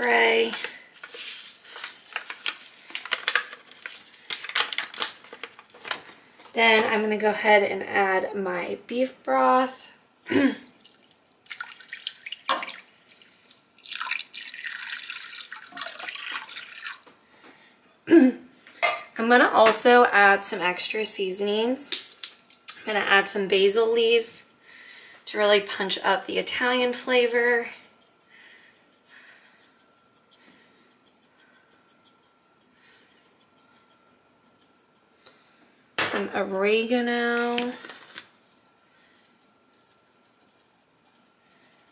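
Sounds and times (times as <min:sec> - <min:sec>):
spice jar rattling: 0:00.6 - 0:05.5, 0:23.6 - 0:35.1
broth pouring into a pot: 0:10.7 - 0:17.2
liquid splashes: 0:10.8 - 0:17.0.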